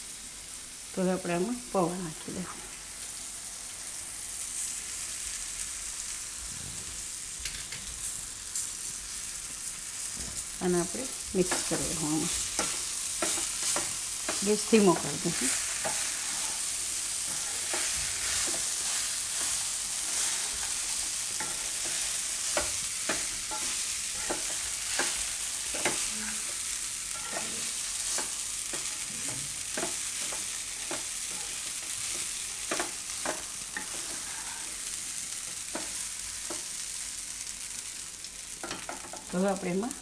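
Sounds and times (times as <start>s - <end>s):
food frying sizzle: 0.0s - 40.0s
spatula scraping and tapping pan: 11.4s - 16.6s, 17.2s - 36.8s, 38.6s - 39.3s.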